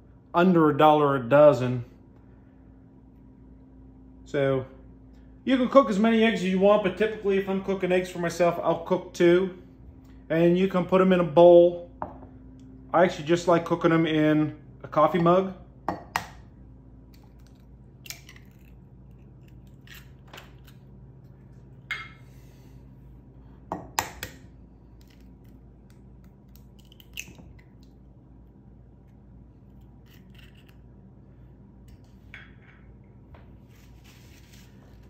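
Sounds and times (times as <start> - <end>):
eggshells cracking on a mug: 17.1 - 20.9, 24.0 - 28.0.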